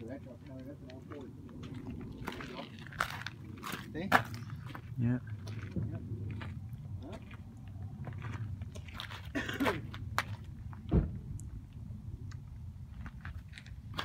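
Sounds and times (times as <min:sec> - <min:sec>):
low thump: 0:10.9 - 0:11.4.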